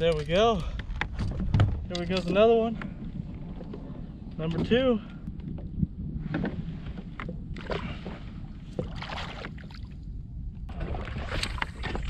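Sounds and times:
wind rumbling on microphone: 0.0 - 12.0
water lapping against kayak hull: 2.8 - 10.0, 10.7 - 12.0.

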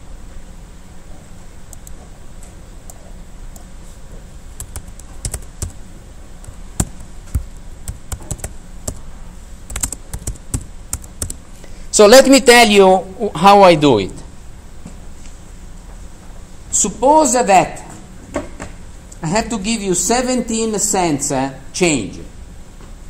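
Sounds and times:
computer keyboard typing: 4.6 - 5.8, 6.4 - 9.1, 9.7 - 11.4.

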